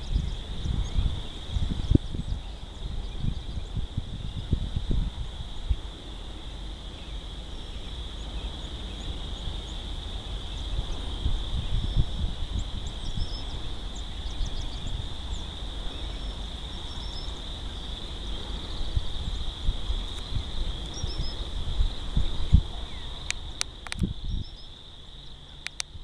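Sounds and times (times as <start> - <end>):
wind buffeting microphone: 0.0 - 26.0.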